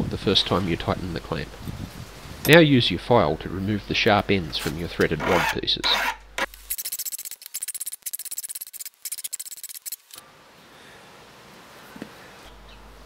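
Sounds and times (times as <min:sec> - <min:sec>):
file rasping on steel: 0:05.2 - 0:06.4.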